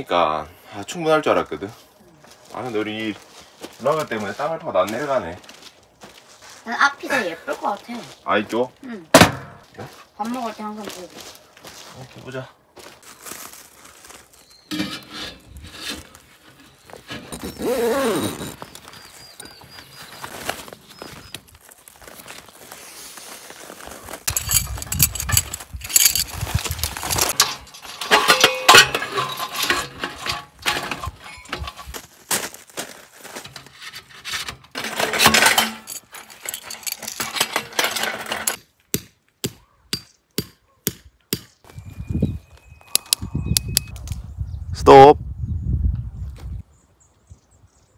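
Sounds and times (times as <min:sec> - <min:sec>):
metal pipe sections clinking: 0:14.7 - 0:17.5, 0:24.3 - 0:32.0, 0:33.4 - 0:38.6.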